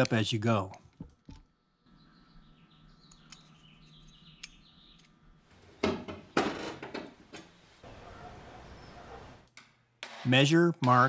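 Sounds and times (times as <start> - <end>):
faint bird chirping: 1.6 - 5.4, 7.9 - 9.4.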